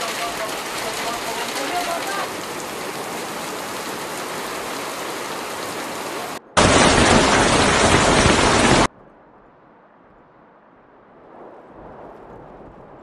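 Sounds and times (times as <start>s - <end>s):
hail and rain downpour: 0.0s - 8.9s
wind-driven storm rain: 0.0s - 13.0s.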